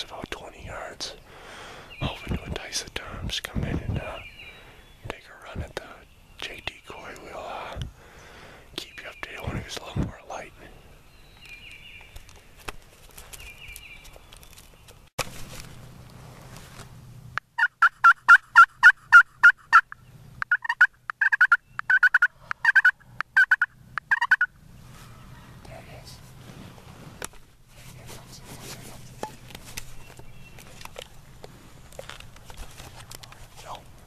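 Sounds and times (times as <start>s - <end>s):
turkey yelping: 17.6s - 25.6s.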